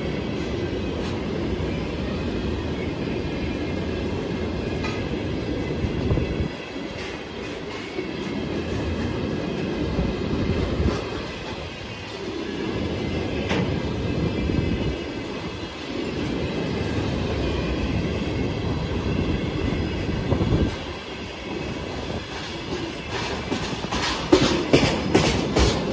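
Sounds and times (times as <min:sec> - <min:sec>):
train wheels rumbling on rail: 0:00.0 - 0:25.9.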